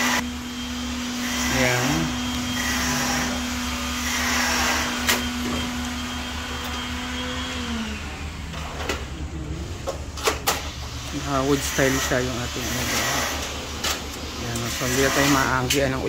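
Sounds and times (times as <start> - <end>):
small motor humming: 0.0 - 9.2, 10.8 - 15.8.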